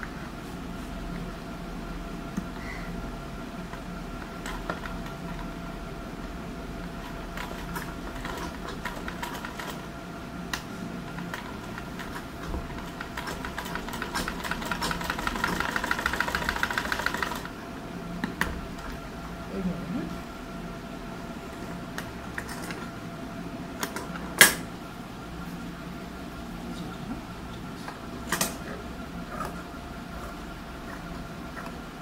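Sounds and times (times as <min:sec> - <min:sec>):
sewing machine stitching: 0:11.2 - 0:17.5.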